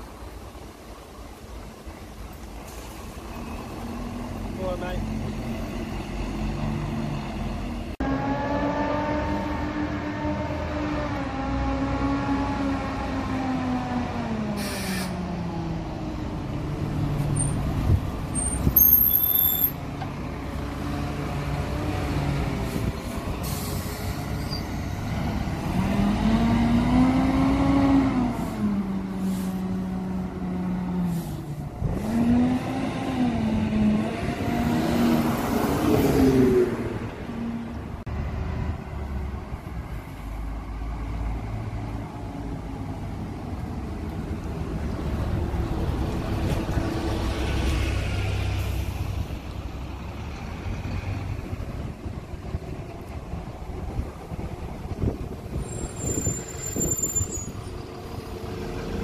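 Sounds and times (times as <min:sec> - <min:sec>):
bus diesel engines: 0:00.0 - 0:59.0
high brake squeal: 0:14.6 - 0:15.2, 0:18.3 - 0:19.8, 0:23.4 - 0:24.8, 0:55.6 - 0:57.8.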